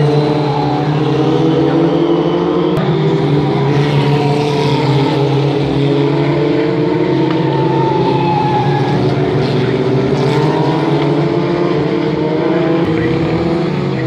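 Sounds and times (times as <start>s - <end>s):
racing car engines passing: 0.0s - 14.0s.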